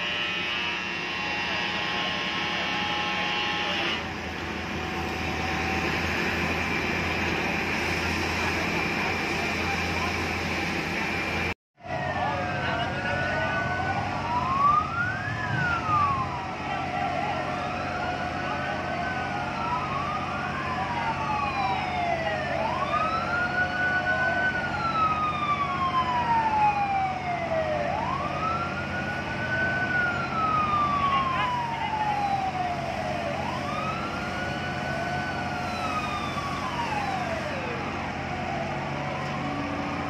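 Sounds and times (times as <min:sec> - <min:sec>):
fire truck sirens wailing: 0:00.0 - 0:40.0.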